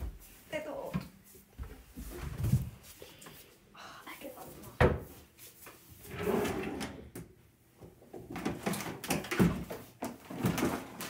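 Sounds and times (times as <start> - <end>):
drawer sliding open: 6.0 - 7.2.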